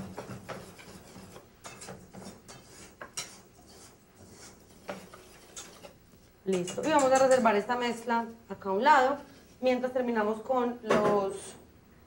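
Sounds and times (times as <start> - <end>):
whisk scraping metal bowl: 0.0 - 6.0.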